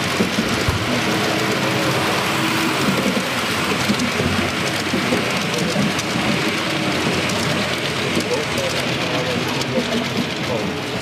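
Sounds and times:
model train wheels rattling on rail: 0.0 - 11.0.

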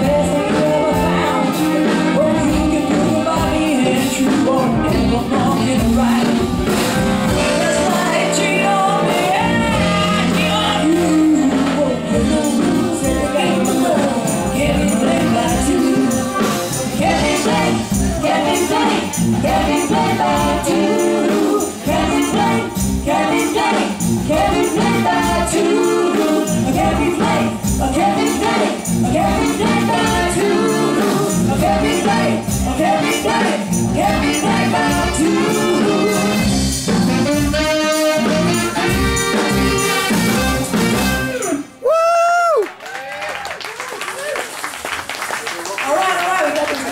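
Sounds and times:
woman singing lead: 0.0 - 39.8
live band playing upbeat song: 0.0 - 42.0
drums: 0.0 - 42.8
saxophones: 6.4 - 41.8.

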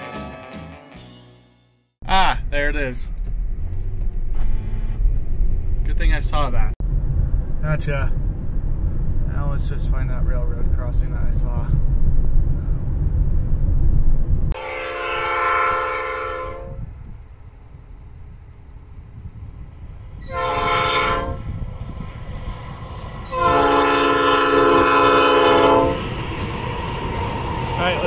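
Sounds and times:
low rumble of moving vehicle: 2.0 - 28.0
locomotive air horn blasts: 14.6 - 16.9, 20.2 - 21.5, 23.2 - 26.1.

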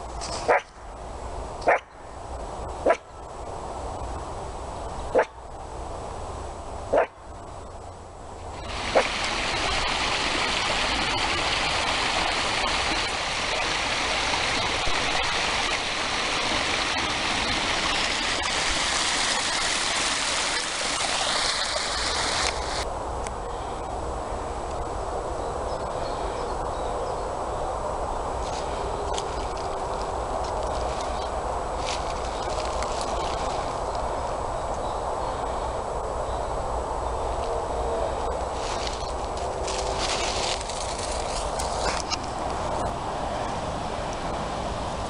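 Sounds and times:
flowing stream water rushing: 8.3 - 22.9, 28.4 - 34.5, 38.0 - 45.0.

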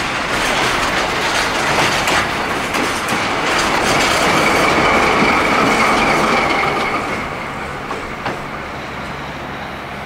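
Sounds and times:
freight train passing: 0.0 - 10.0
wheel squeal: 4.0 - 9.8.

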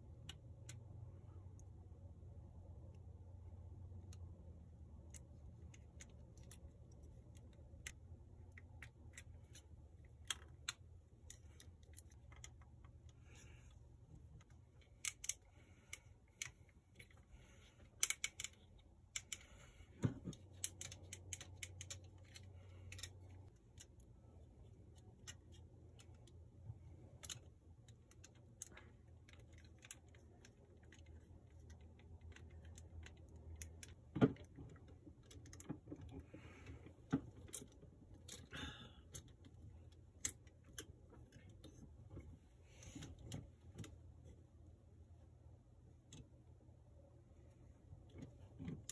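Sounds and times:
low steady hum: 0.0 - 48.9
plastic model parts clicking: 3.8 - 13.5, 14.4 - 17.2, 17.8 - 19.6, 20.2 - 36.2, 39.1 - 41.8.

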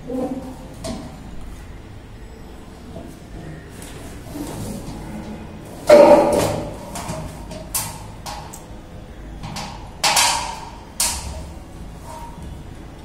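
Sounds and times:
metal satellite dish clanking: 9.4 - 12.4.

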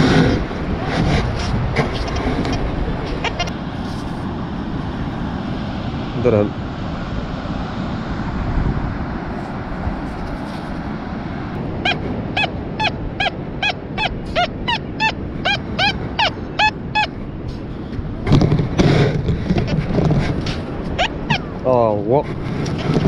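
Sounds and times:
surf: 0.0 - 23.0
wind: 0.0 - 23.0
gull yelping calls: 3.1 - 3.6, 11.8 - 17.2, 20.6 - 21.7.

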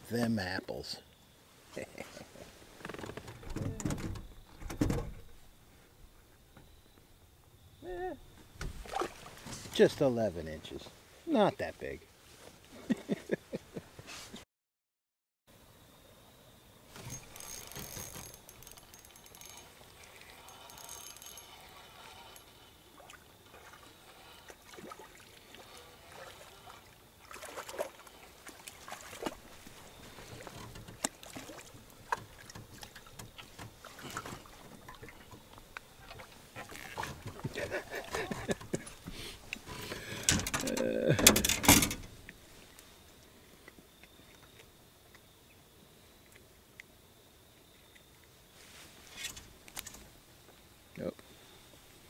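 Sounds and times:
water trickling: 7.8 - 10.1, 17.0 - 41.2.

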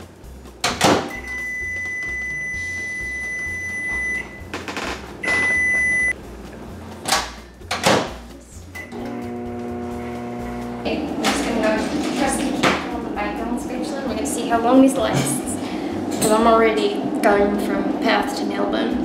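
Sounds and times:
microwave steady high tone: 1.1 - 4.5, 5.2 - 6.2.

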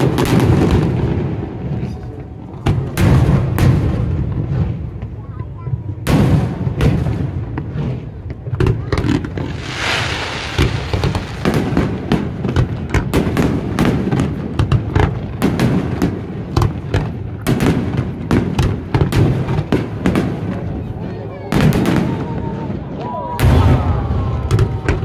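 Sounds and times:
fireworks bangs: 0.0 - 25.0
hissing crackle: 9.2 - 12.1.

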